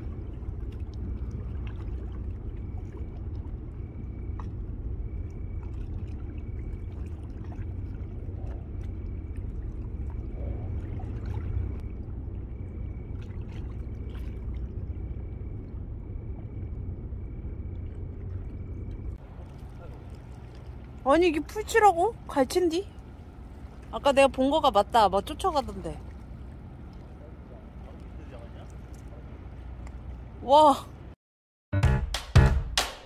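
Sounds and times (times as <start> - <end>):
water lapping on rocks: 0.0 - 11.9, 17.7 - 31.1
low rumble: 0.0 - 31.2.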